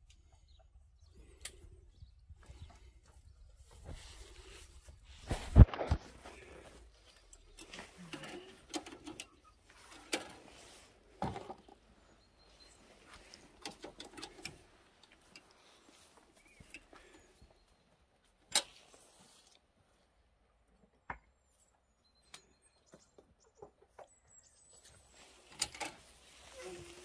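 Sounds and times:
rustling on straw: 25.1 - 27.0.

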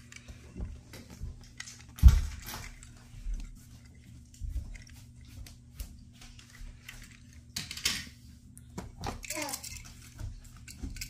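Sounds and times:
toy cars clicking and knocking: 9.1 - 9.8
toy cars clattering: 9.2 - 9.9.

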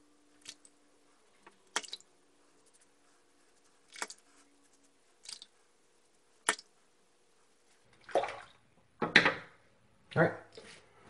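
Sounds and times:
razor strokes through stubble: 2.3 - 7.8.

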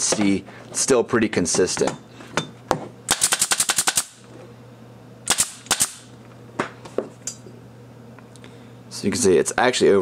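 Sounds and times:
pin nailer popping: 3.1 - 4.2, 5.3 - 6.1.

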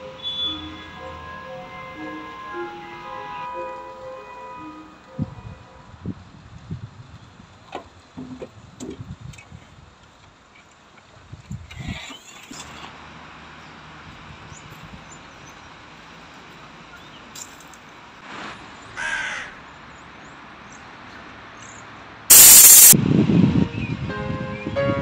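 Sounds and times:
crow cawing: 19.0 - 19.5
loud harsh noise burst: 22.3 - 23.0.

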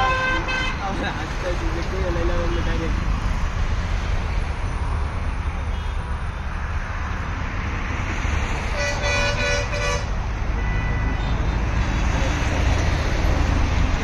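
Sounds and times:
vehicle horn toots: 0.0 - 0.8, 8.7 - 11.5
traffic rumble: 0.0 - 14.0.

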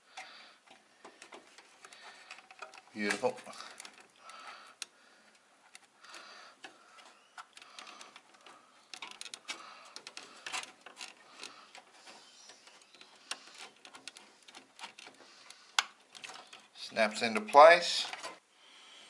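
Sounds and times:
small metal and plastic clicks: 0.1 - 18.4.

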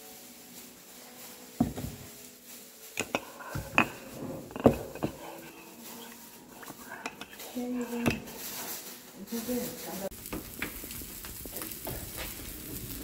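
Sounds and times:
dishes and utensils clinking: 0.9 - 10.7.

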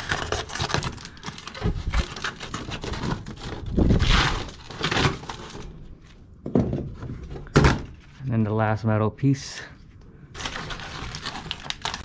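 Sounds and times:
foil duct crackling and crinkling: 0.0 - 6.2, 10.3 - 12.0.

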